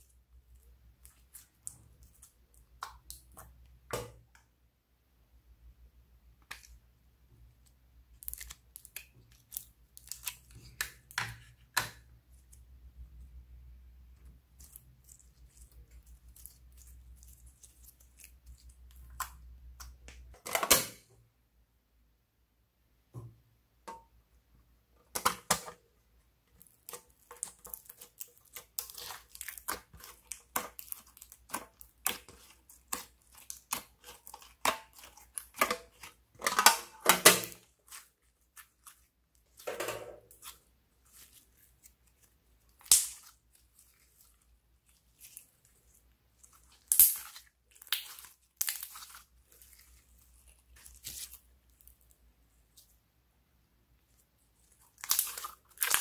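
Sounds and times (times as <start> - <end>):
slime clicking and popping: 42.7 - 43.4, 46.8 - 49.2, 55.0 - 56.0.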